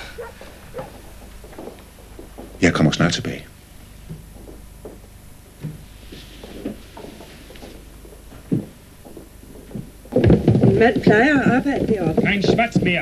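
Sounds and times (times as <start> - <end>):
low steady hum: 0.0 - 13.0
soft knocks: 4.0 - 13.0.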